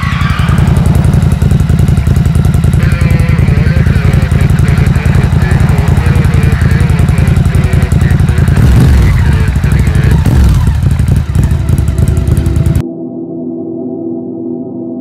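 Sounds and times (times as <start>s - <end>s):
gong-like music drone: 0.0s - 3.3s, 12.8s - 15.0s
motorcycle engine revving: 0.0s - 12.8s.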